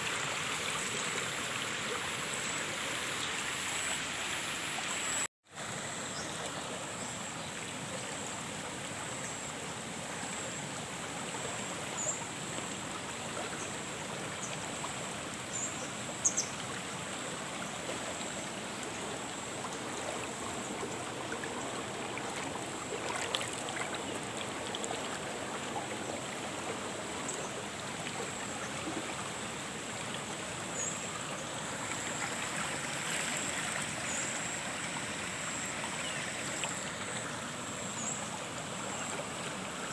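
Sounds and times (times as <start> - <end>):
water rushing in channel: 9.6 - 39.9.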